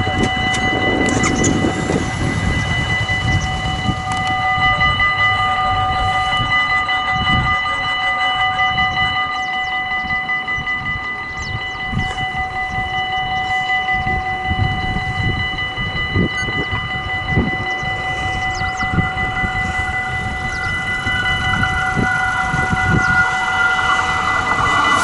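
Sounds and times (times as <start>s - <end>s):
low rumble: 0.0s - 7.8s
warning bell ringing: 0.0s - 25.0s.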